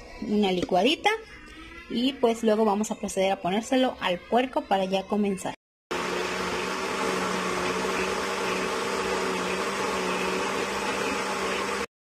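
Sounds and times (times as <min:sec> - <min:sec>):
blender motor whirring: 0:05.9 - 0:11.9.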